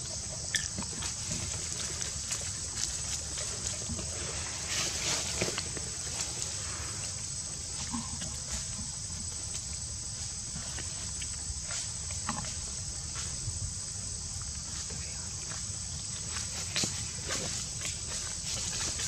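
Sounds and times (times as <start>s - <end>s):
insects droning: 0.0s - 19.0s.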